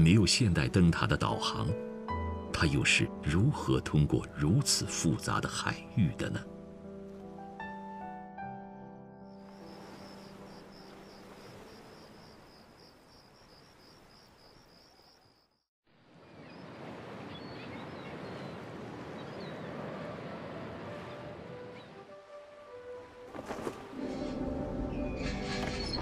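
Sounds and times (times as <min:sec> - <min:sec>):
sea and wind rushing: 0:09.4 - 0:15.1, 0:15.9 - 0:25.1
night insects trilling: 0:09.4 - 0:15.6.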